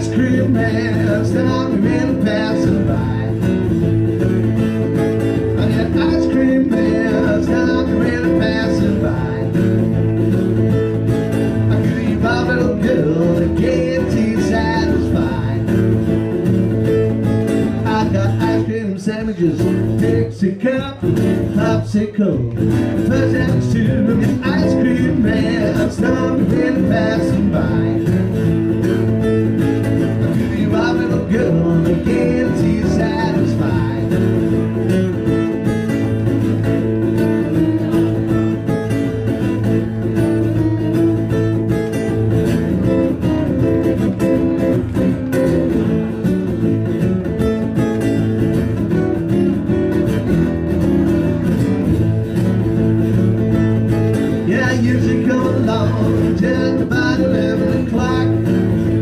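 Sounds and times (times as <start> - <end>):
man singing: 0.0 - 3.7, 5.4 - 9.9, 11.6 - 16.0, 17.7 - 28.5, 30.0 - 34.9, 54.2 - 59.0
strummed acoustic guitar: 0.0 - 59.0.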